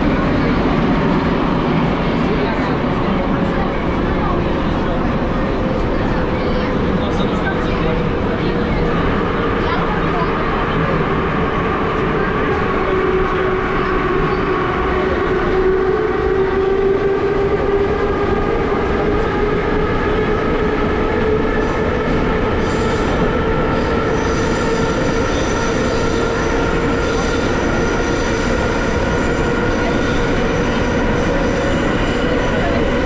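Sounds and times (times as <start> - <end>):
train rolling rumble: 0.0 - 33.0.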